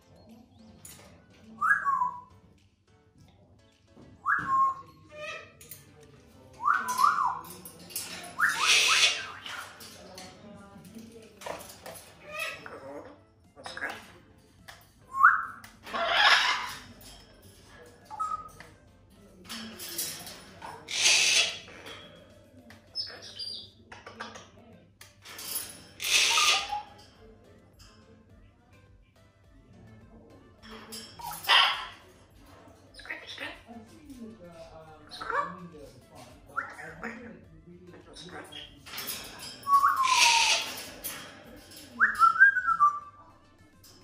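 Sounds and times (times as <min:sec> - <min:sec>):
parrot whistling: 0:01.6 - 0:02.3, 0:06.6 - 0:07.4, 0:08.4 - 0:09.4, 0:39.7 - 0:40.7, 0:42.0 - 0:43.2
parrot harsh calls: 0:08.0 - 0:09.8, 0:12.2 - 0:14.1, 0:15.3 - 0:16.9, 0:20.6 - 0:22.0, 0:26.0 - 0:26.9, 0:31.2 - 0:32.0, 0:39.7 - 0:40.9.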